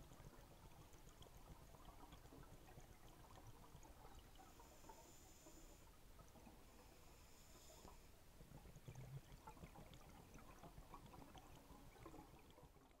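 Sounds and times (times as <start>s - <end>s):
underwater crackles: 0.0s - 13.0s.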